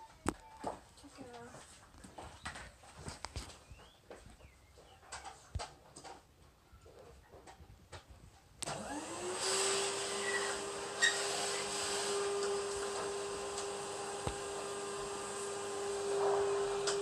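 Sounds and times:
faint clicks and scratches: 0:00.1 - 0:08.7
electric motor whining: 0:08.7 - 0:17.0.

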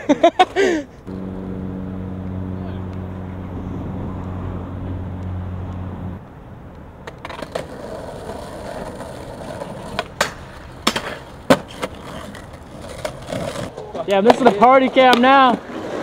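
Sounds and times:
skateboard wheels rolling on asphalt: 0:00.0 - 0:16.0
steady low hum: 0:01.0 - 0:06.7.

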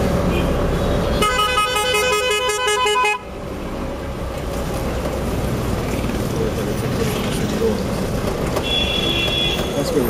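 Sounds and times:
road and engine noise: 0:00.0 - 0:10.0
warbling musical car horn: 0:01.2 - 0:03.2.

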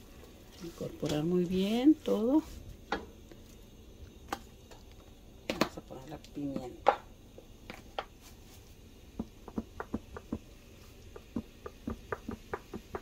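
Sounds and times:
faint hiss: 0:00.0 - 0:13.0.

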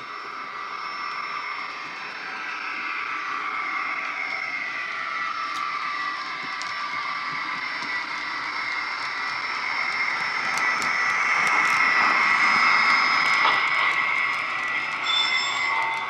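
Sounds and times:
model locomotive electric whine: 0:00.0 - 0:16.0.

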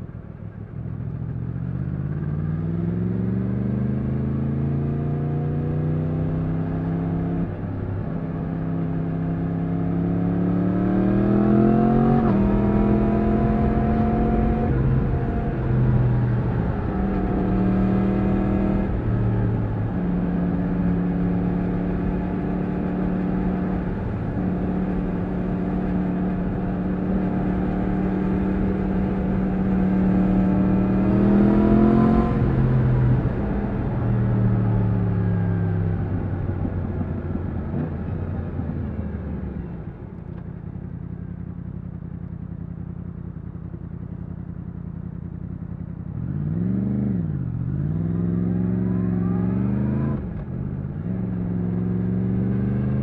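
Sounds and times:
motorcycle engine revving: 0:08.6 - 0:39.8, 0:41.1 - 0:53.0.

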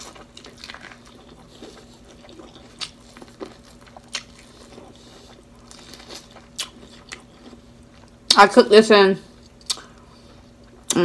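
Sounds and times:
chewing: 0:00.0 - 0:08.4.

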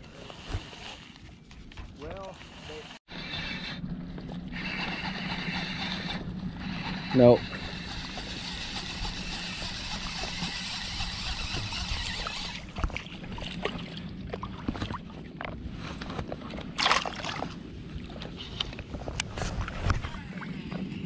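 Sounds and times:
water sloshing and lapping: 0:00.0 - 0:21.0
small splashes: 0:16.8 - 0:17.6.

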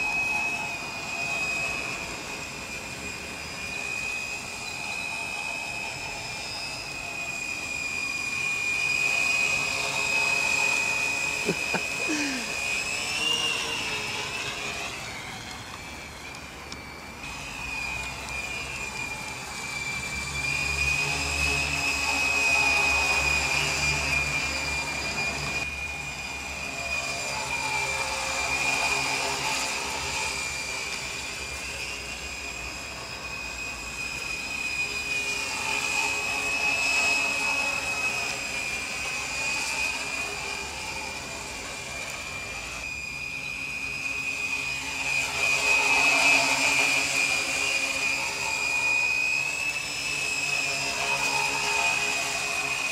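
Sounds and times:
drone motors whining: 0:00.0 - 0:52.9.

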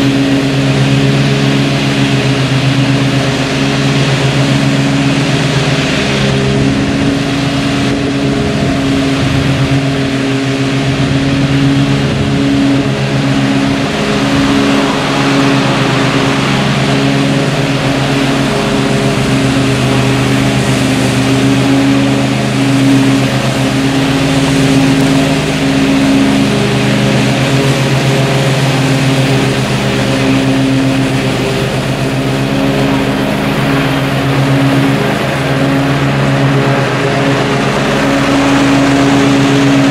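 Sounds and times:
riding mower engine running: 0:00.0 - 0:39.9.

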